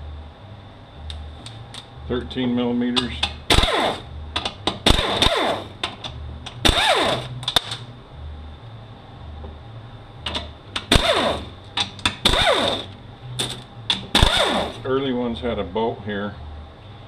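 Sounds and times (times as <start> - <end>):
pneumatic air ratchet bursts: 3.5 - 4.1, 4.9 - 5.8, 6.6 - 7.3, 10.9 - 11.5, 12.2 - 12.9, 14.1 - 14.8.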